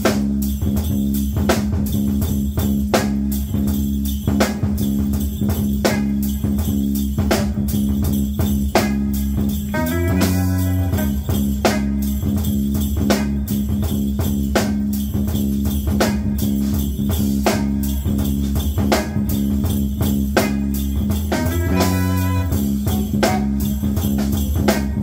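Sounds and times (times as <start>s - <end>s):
jazz band playing: 0.0s - 25.0s
alto saxophone melody: 9.6s - 12.2s, 20.4s - 24.1s.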